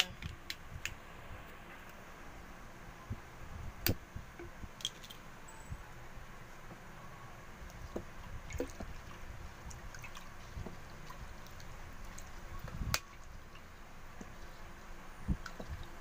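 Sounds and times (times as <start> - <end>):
liquid sloshing: 7.7 - 14.6.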